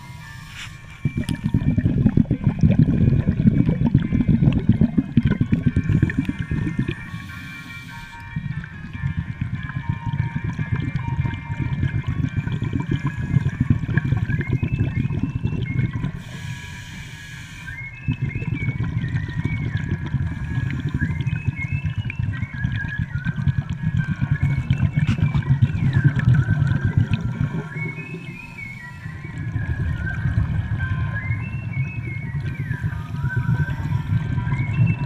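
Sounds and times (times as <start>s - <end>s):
regulator hissing inhalation: 0.0s - 1.0s, 5.9s - 8.3s, 16.2s - 17.8s
underwater bubbling exhale: 0.0s - 35.0s.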